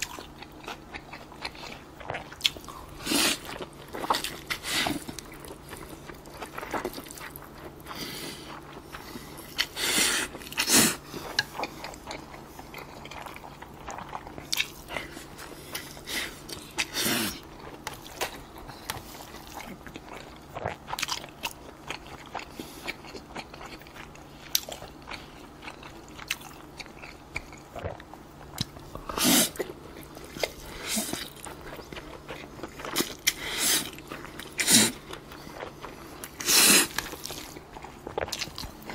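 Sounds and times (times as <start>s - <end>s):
chewing: 0.0s - 38.9s
slurping noodles: 33.3s - 35.0s, 36.4s - 37.3s.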